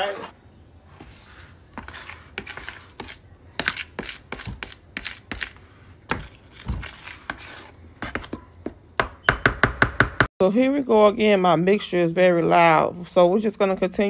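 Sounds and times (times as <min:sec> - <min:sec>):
utensil scraping batter in plastic bowl: 0:00.9 - 0:08.5.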